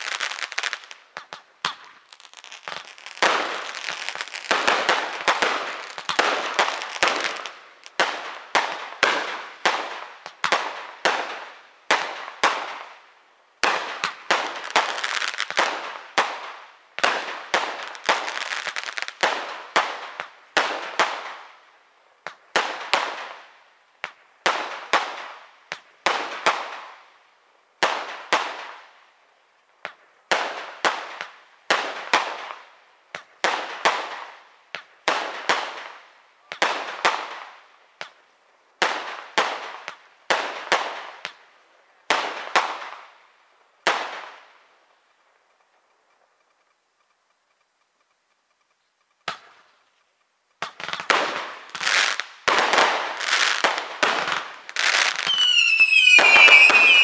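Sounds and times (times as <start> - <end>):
firework shells bursting: 52.5 - 57.0.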